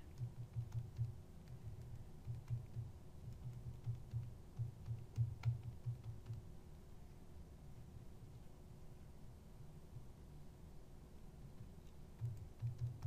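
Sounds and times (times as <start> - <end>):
calculator keys clicking: 0.0 - 6.4, 12.2 - 13.0.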